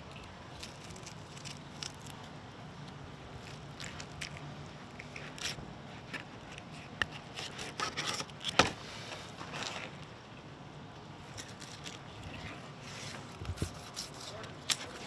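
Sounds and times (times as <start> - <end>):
knife scraping through fish: 5.1 - 8.3.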